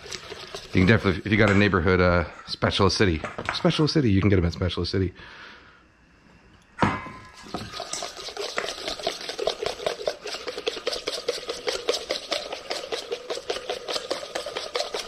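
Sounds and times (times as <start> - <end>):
whisk scraping metal bowl: 0.0 - 1.8, 7.2 - 15.0.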